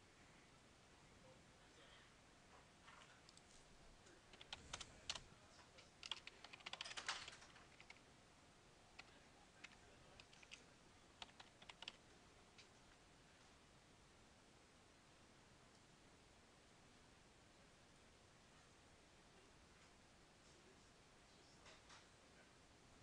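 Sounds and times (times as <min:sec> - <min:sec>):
typing on a computer keyboard: 0:04.3 - 0:08.0, 0:09.0 - 0:12.0.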